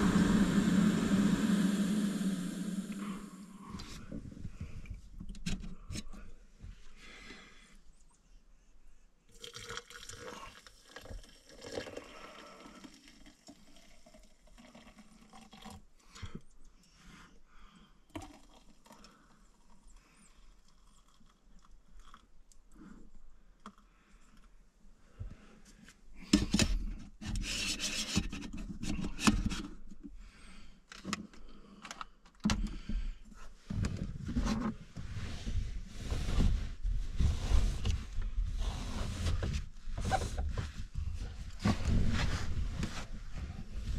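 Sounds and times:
water pouring into a mug: 9.3s - 15.9s, 18.1s - 19.1s, 20.4s - 22.2s.

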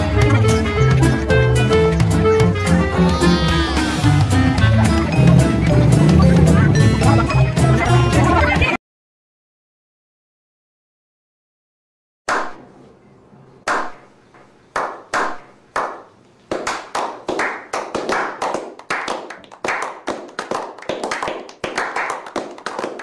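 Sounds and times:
people clapping: 14.8s - 23.0s.

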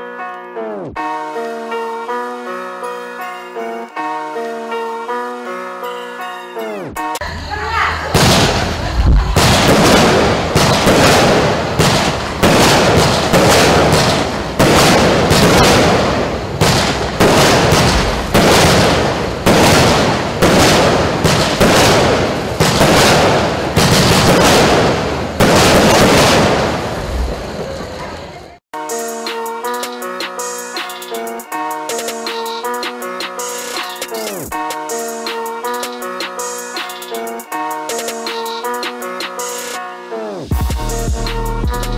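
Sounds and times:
firework shots with lingering tail: 8.1s - 27.8s.

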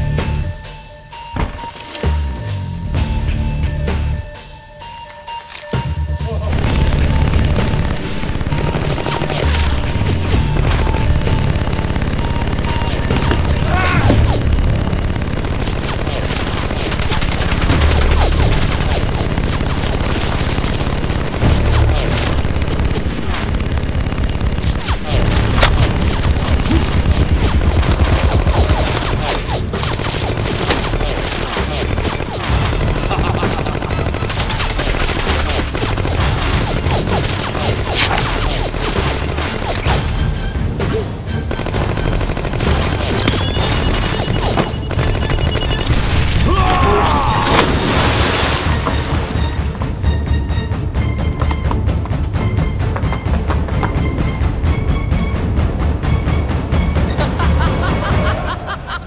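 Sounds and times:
machine gun fire: 6.5s - 40.1s, 41.4s - 48.3s.

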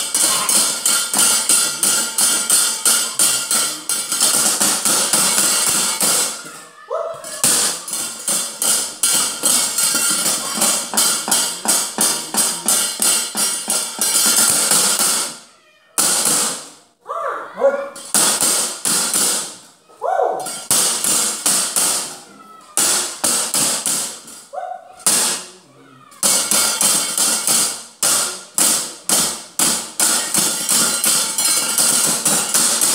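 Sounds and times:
metal plates and wooden knocker clattering: 0.0s - 15.4s, 18.0s - 19.7s, 26.2s - 32.9s.

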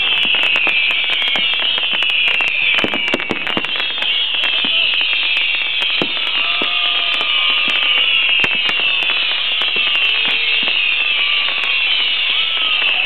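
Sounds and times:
fireworks crackling pops: 0.0s - 13.0s
fireworks whistling hiss: 0.0s - 13.0s.

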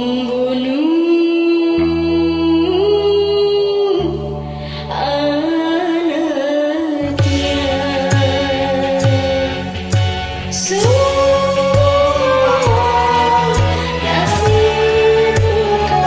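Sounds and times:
backing track chords: 7.1s - 16.0s
steady beat: 10.0s - 16.0s
person singing long notes: 10.6s - 16.0s.

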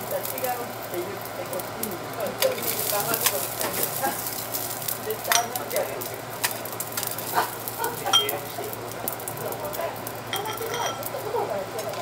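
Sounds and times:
rice sizzling on a griddle: 0.0s - 12.0s
metal spatula scraping and tapping: 10.4s - 11.1s.

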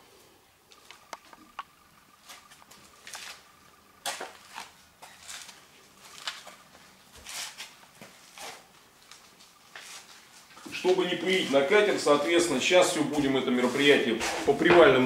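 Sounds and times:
footsteps scuffing on gritty floor: 2.2s - 15.0s.

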